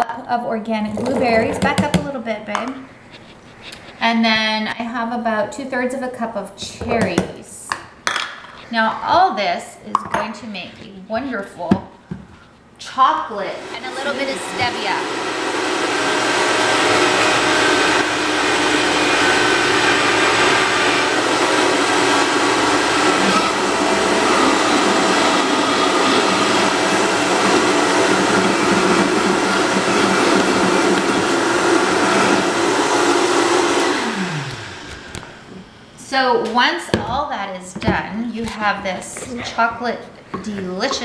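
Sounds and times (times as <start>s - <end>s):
blender running: 13.2s - 35.7s
blender motor winding down: 13.5s - 35.5s.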